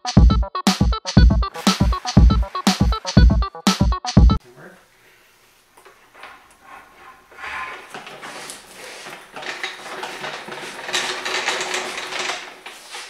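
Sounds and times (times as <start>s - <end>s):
dolly casters rattling on concrete: 1.5s - 3.2s, 6.2s - 13.0s.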